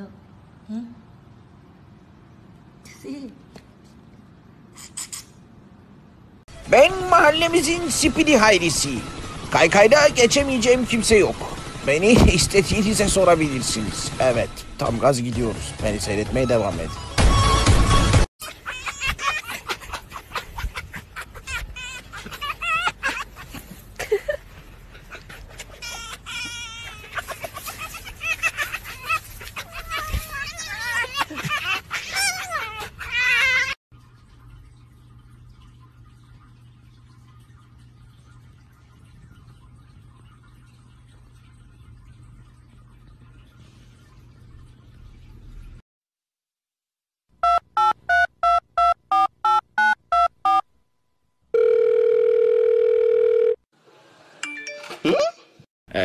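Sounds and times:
rustle in dry leaves: 27.1s - 31.0s.

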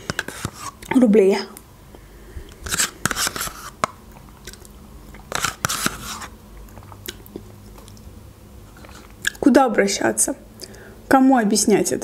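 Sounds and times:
spoon scraping plastic cup: 0.0s - 0.9s, 2.6s - 4.0s, 5.3s - 6.4s
wet mouth sounds: 4.1s - 8.0s.

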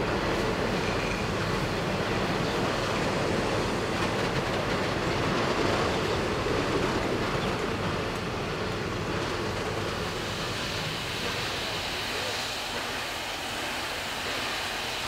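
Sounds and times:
steam train rolling past: 0.0s - 15.0s
high hiss: 10.0s - 15.0s.

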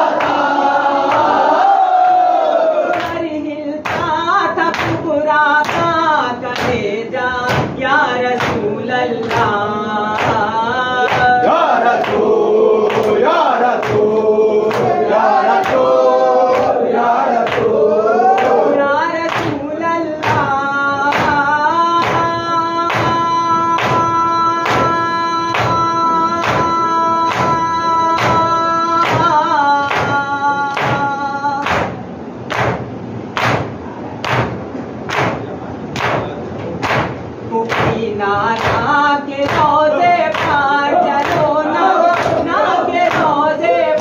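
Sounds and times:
men chanting in unison: 0.0s - 3.4s, 5.8s - 31.2s, 37.9s - 44.0s
rhythmic chest-beating strikes: 2.9s - 44.0s.

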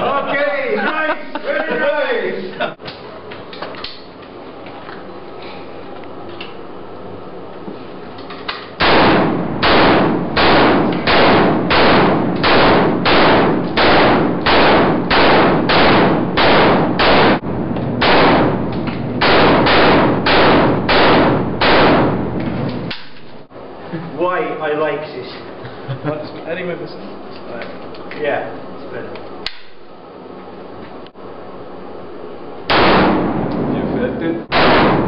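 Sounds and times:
rifle shots echoing indoors: 8.8s - 23.2s, 32.6s - 33.8s, 34.5s - 35.0s.

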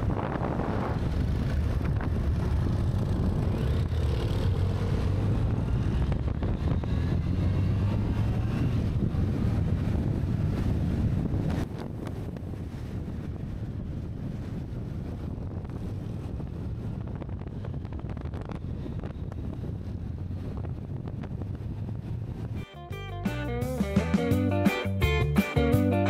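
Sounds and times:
wind noise on microphone: 0.0s - 22.8s.

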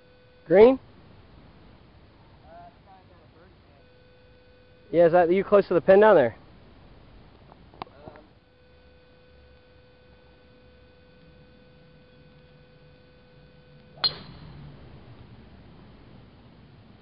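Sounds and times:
faint steady whine: 0.0s - 17.0s
golf driver striking ball: 14.0s - 15.0s.

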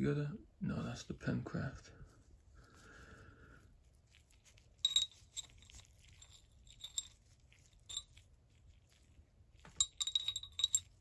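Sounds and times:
metal parts clinking: 9.8s - 10.9s.

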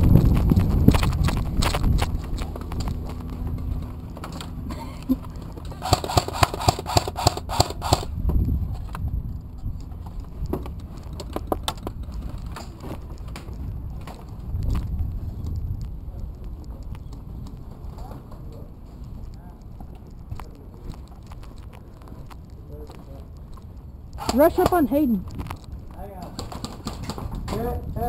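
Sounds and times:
rustling and bumps of gear: 0.0s - 28.0s
sharp clicks: 4.0s - 8.2s.

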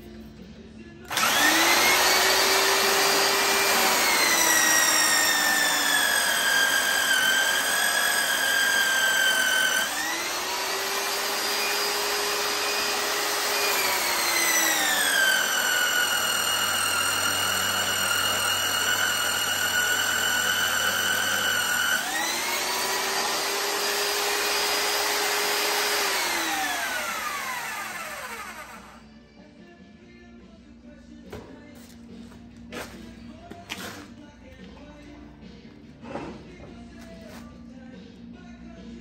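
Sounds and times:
drill press boring through steel: 1.1s - 29.0s.

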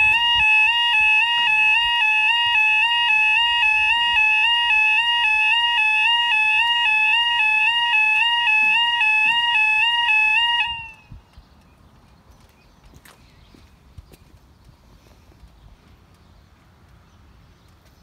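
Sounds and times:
two-tone level crossing alarm: 0.0s - 11.1s.

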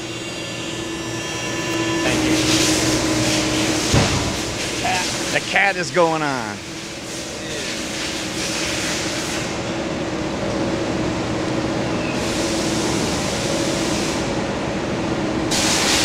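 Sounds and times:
factory machinery humming: 0.0s - 16.0s
hiss: 15.5s - 16.0s.

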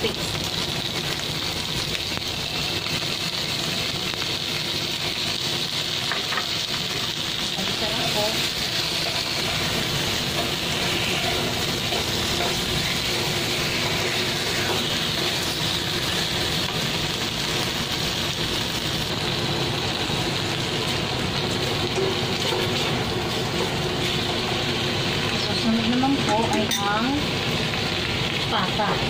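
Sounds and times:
food sizzling in hot oil: 0.0s - 29.0s
spatula stirring in wok: 5.0s - 26.9s.

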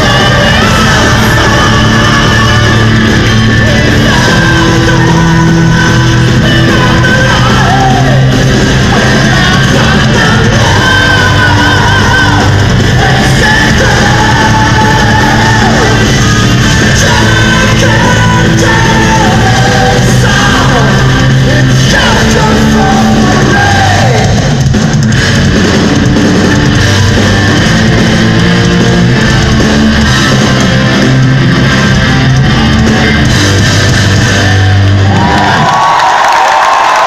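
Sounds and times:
person singing long held notes: 0.0s - 24.4s
metal band playing live: 0.0s - 37.0s.

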